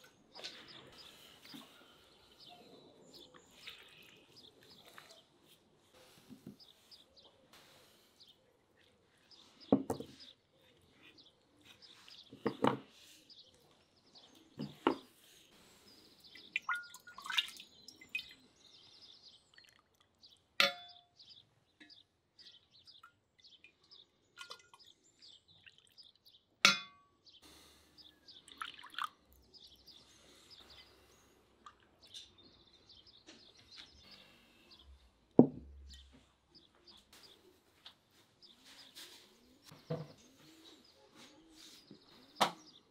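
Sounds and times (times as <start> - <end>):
birds chirping: 0.0 - 42.9
clay bowl and utensils clinking: 20.6 - 21.1, 26.7 - 27.1.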